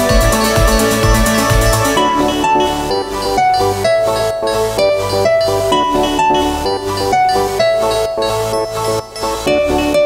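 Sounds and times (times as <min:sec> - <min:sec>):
steady beat: 0:00.0 - 0:02.9.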